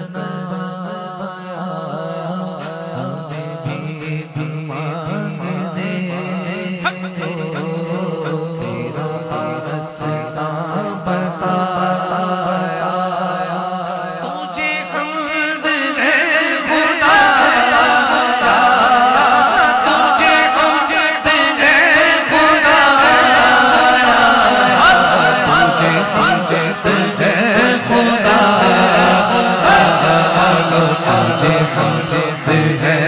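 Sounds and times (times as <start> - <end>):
man singing into a microphone: 0.0 - 33.0.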